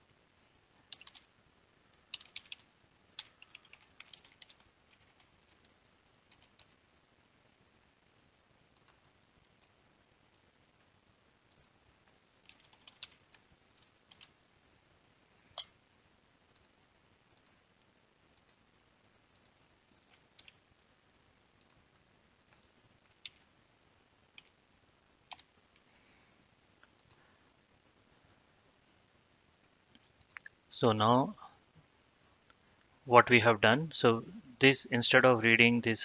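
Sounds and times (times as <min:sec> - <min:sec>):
mouse and keyboard clicks: 0:25.3 - 0:25.5.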